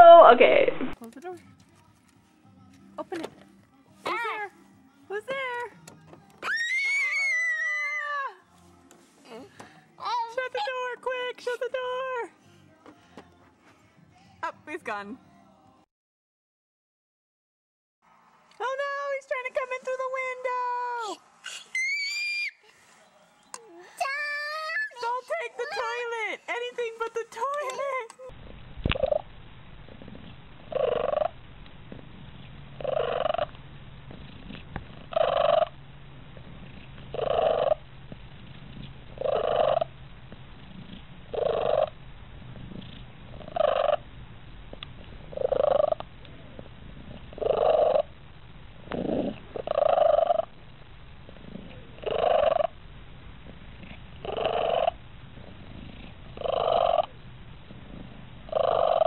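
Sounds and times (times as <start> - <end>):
cat purring: 28.3 - 59.0.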